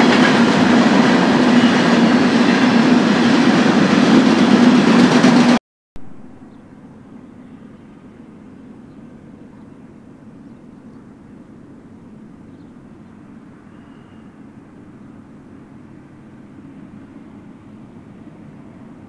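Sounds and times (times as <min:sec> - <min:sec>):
low rumble of distant engines: 0:06.0 - 0:19.0.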